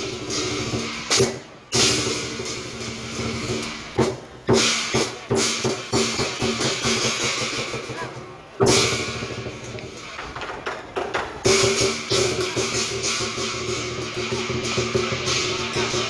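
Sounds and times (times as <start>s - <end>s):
drum beats: 0.0s - 16.0s
cymbal clashes: 11.5s - 16.0s.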